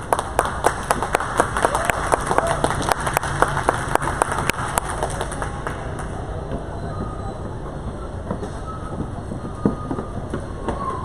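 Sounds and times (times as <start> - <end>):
spectators clapping in rhythm: 0.0 - 6.4
crowd chatter: 0.0 - 11.0.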